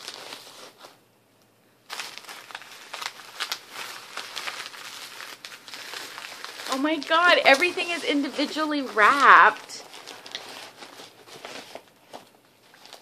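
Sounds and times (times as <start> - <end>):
paper crinkling and rustling: 0.0 - 1.0, 1.8 - 13.0.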